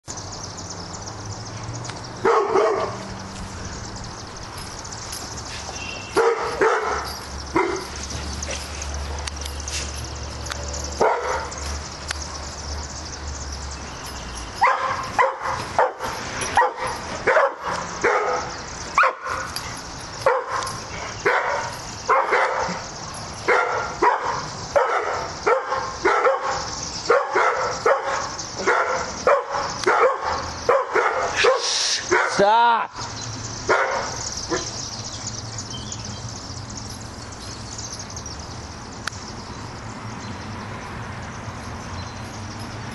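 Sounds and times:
dog barking: 2.2 - 3.1, 6.1 - 8.0, 11.0 - 11.6, 14.6 - 19.6, 20.2 - 32.5, 33.7 - 34.8.

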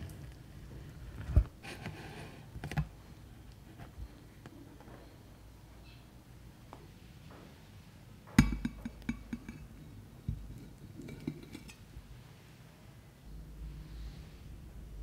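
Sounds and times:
plate clinks and taps: 8.4 - 11.8.

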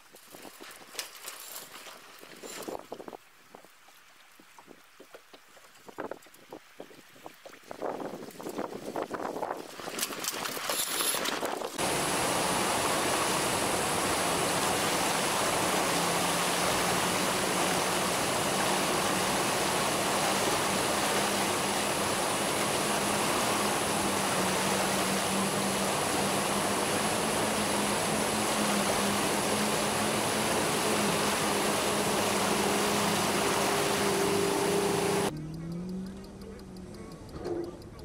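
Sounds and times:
wind on microphone: 5.8 - 35.3
boat engine hum: 9.8 - 38.0
river rapids rushing: 11.8 - 35.3.

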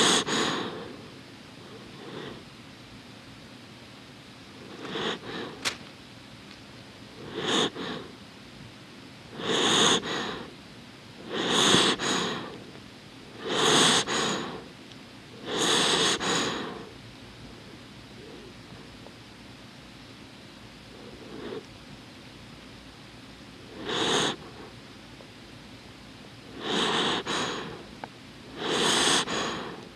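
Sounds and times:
dog breathing through nose: 0.0 - 1.1, 1.7 - 2.4, 4.6 - 5.6, 7.2 - 8.2, 9.3 - 10.5, 11.2 - 12.7, 13.3 - 14.7, 15.4 - 17.0, 20.9 - 21.7, 23.7 - 24.7, 26.5 - 27.9, 28.5 - 29.9.

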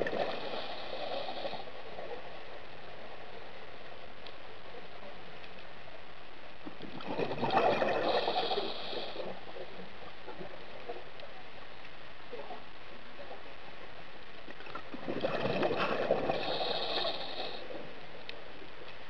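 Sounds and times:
scuba regulator bubbles gurgling: 0.0 - 1.7, 6.8 - 9.8, 14.8 - 17.8
underwater hiss: 0.0 - 2.2, 7.2 - 9.7, 15.4 - 18.0.

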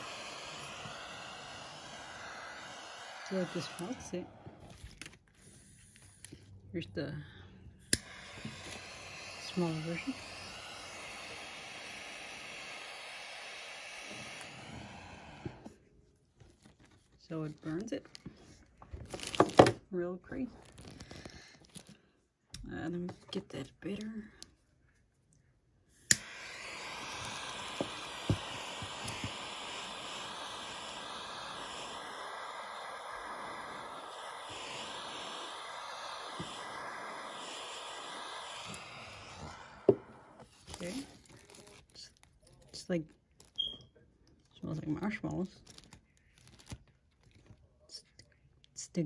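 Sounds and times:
butane torch hissing: 0.0 - 4.8, 7.8 - 15.8, 25.9 - 41.3
torch lighter click: 7.9 - 15.6, 26.0 - 40.4.

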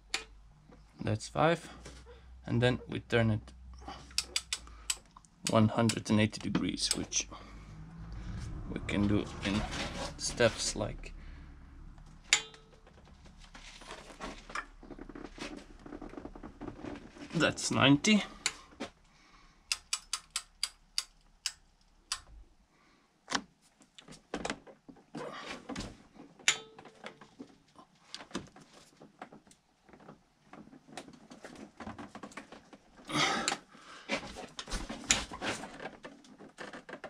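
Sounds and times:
ratchet wrench clicking: 4.1 - 5.0, 19.7 - 22.3
metal knocks and tool handling: 4.1 - 7.1, 12.2 - 15.1, 26.4 - 27.4.

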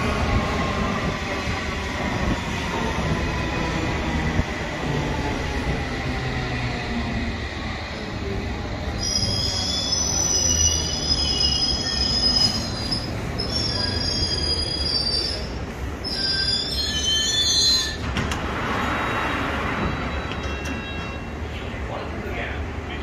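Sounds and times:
train squealing in high tones: 8.8 - 18.1, 18.7 - 21.6.

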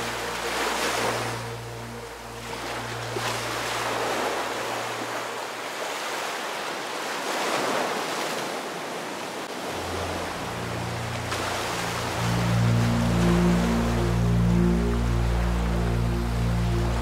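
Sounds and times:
low background music: 0.0 - 5.6, 9.6 - 17.0
ocean surf washing in: 0.0 - 17.0.

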